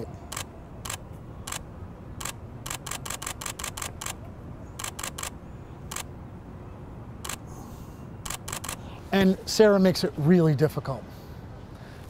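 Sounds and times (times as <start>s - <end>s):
camera shutter clicks: 0.3s - 1.6s, 2.2s - 4.2s, 4.8s - 6.1s, 7.2s - 7.4s, 8.2s - 8.8s.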